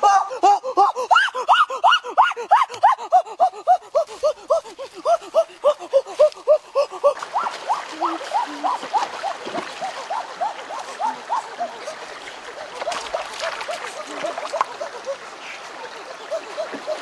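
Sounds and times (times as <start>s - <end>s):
rocky stream running: 0.0s - 17.0s
animal calls rising and falling: 1.1s - 12.0s
bare feet splashing through water: 3.9s - 17.0s.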